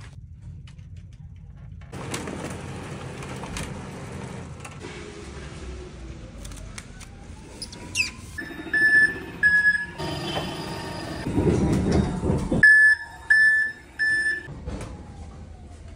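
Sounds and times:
forklift rumbling and clattering: 0.7s - 4.9s, 8.9s - 15.7s
forklift warning beeps: 8.4s - 11.3s, 12.6s - 14.5s.

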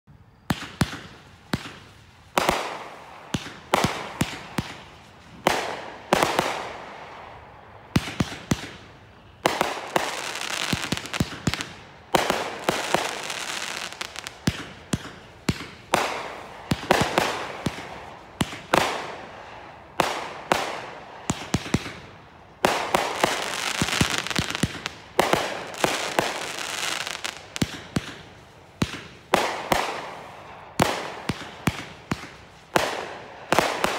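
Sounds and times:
fireworks banging: 0.4s - 7.3s, 7.9s - 33.9s
fireworks fizzing: 7.9s - 33.9s.

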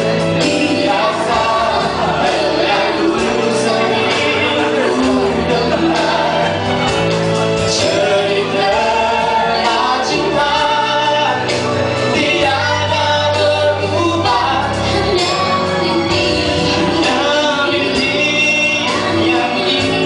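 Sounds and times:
amplified pop accompaniment: 0.0s - 20.0s
man singing: 0.0s - 20.0s
woman singing: 12.2s - 20.0s.

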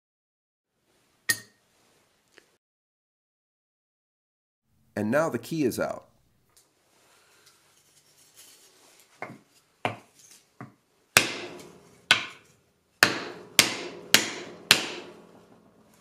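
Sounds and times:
wooden mallet striking wood block: 10.6s - 12.4s, 13.0s - 15.2s.

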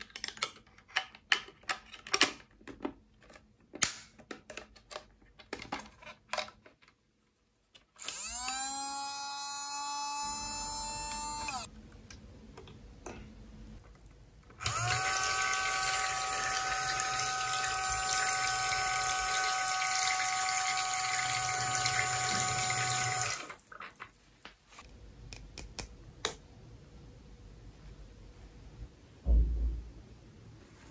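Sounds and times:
plastic clicks: 0.0s - 7.0s
small pump whirring: 8.0s - 11.7s, 14.6s - 23.6s.

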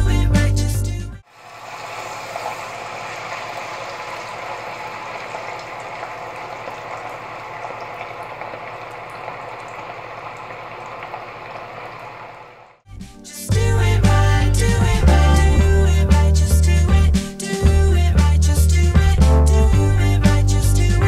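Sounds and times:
deep-frying sizzling and bubbling: 1.2s - 12.7s.

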